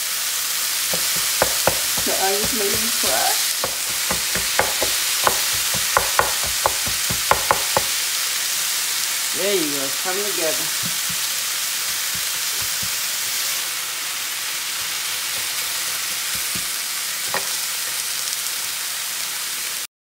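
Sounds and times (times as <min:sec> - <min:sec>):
meat sizzling on a griddle: 0:00.0 - 0:19.9
spatulas chopping and scraping: 0:00.9 - 0:08.0, 0:10.8 - 0:13.2, 0:14.7 - 0:17.6.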